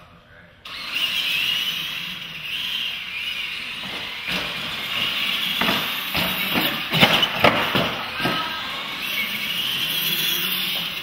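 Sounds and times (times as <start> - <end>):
electric motor whine: 0.7 - 11.0
loud clattering knocks: 3.7 - 9.0.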